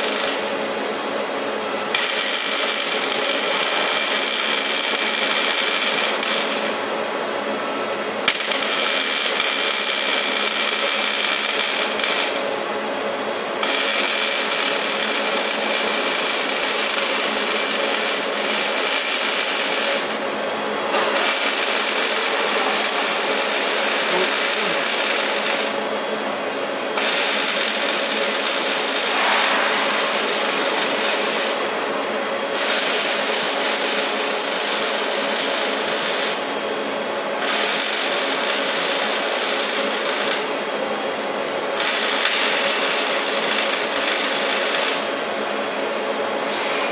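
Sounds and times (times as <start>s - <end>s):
machinery hissing: 20.9s - 25.9s, 27.0s - 36.4s.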